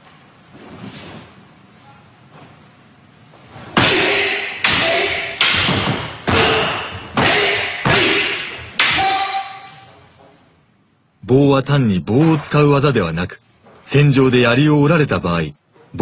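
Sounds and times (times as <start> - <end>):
wooden staff and sword striking: 3.6 - 9.9.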